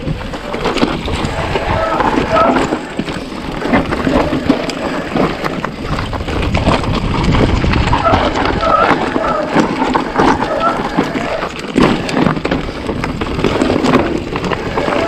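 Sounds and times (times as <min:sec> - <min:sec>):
bicycle tyres on rough ground: 0:00.0 - 0:15.0
bike knocking and rattling: 0:00.0 - 0:15.0
wind rumbling on microphone: 0:00.0 - 0:15.0.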